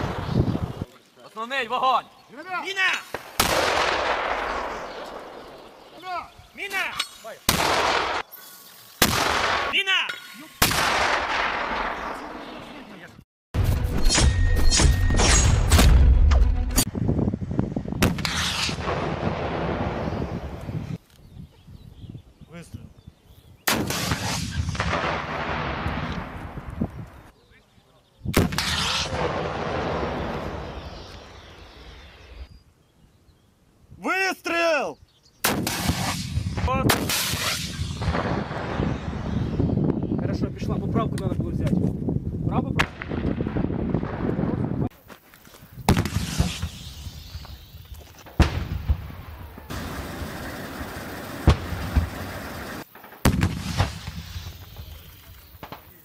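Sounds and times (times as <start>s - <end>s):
rocket launcher blast: 7.5s - 8.2s, 9.0s - 9.8s, 10.6s - 12.2s, 13.6s - 16.9s, 18.0s - 20.2s, 23.7s - 26.4s, 28.4s - 30.8s, 35.4s - 39.6s, 45.9s - 47.4s, 48.4s - 54.6s.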